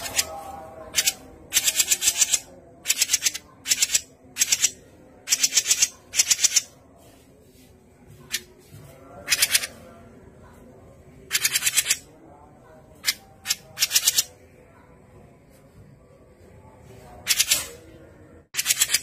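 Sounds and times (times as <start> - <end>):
bird rattling chatter calls: 0.9 - 6.7, 11.3 - 12.0.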